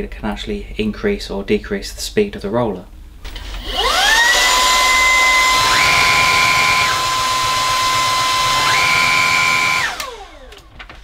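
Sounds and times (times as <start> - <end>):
vacuum motor whine: 3.3 - 10.8.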